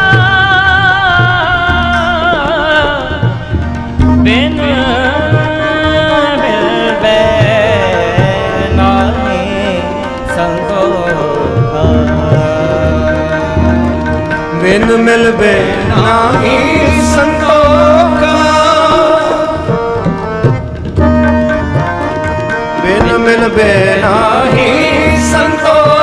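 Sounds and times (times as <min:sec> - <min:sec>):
men singing devotional song: 0:00.0 - 0:20.6, 0:21.6 - 0:26.0
harmonium reeds: 0:00.0 - 0:26.0
tabla rhythm: 0:00.0 - 0:26.0.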